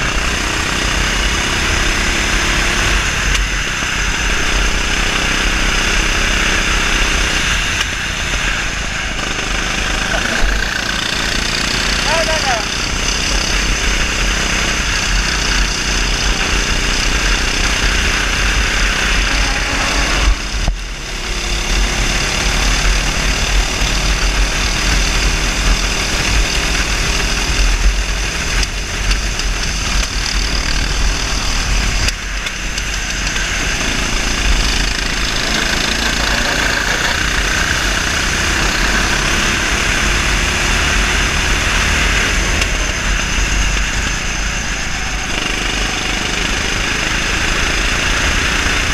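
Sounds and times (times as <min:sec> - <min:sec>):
kart engine running hard: 0:00.0 - 0:48.9
wind rumbling on microphone: 0:13.2 - 0:38.8.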